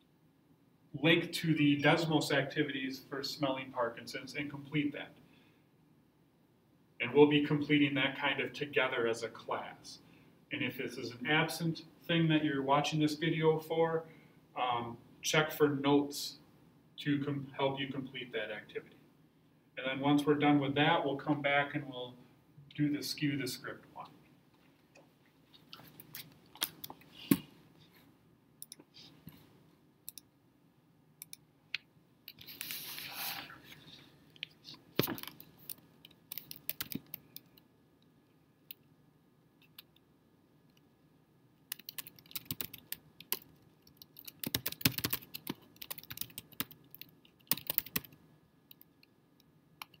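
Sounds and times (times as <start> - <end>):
keyboard typing: 35.0 - 37.6, 41.7 - 49.0, 49.8 - 50.0.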